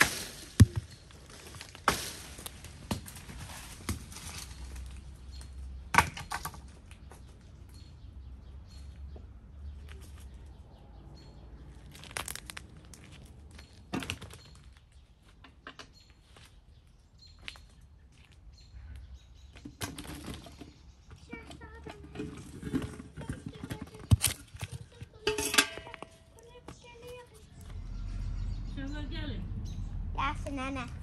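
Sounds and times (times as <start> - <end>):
dry leaves rustling: 0.0 - 5.7, 11.6 - 15.0.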